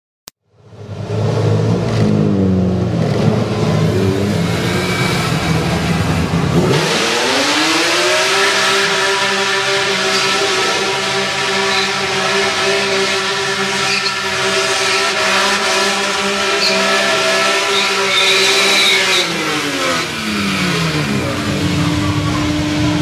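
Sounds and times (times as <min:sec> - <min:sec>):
car engine at high revs: 0:00.6 - 0:23.0
tyres squealing: 0:08.4 - 0:22.6.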